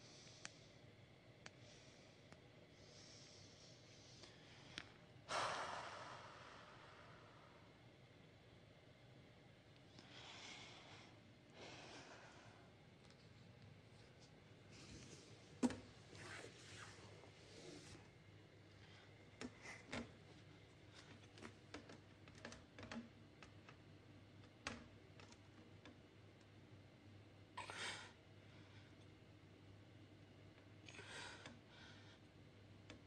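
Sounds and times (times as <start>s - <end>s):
soft rustling: 13.0s - 18.1s.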